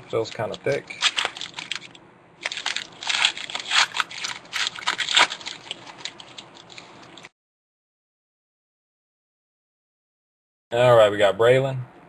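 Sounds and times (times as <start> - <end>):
foil wrapper tearing and crinkling: 0.2 - 7.3.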